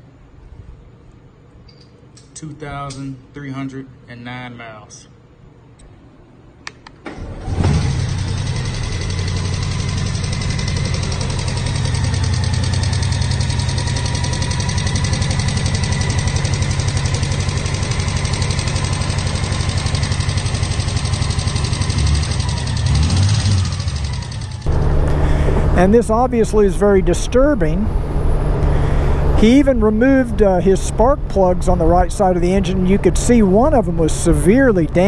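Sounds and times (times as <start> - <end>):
motorcycle engine starting: 7.0 - 35.0
rapid engine clicking: 7.2 - 35.0
motorcycle engine idling: 7.7 - 35.0.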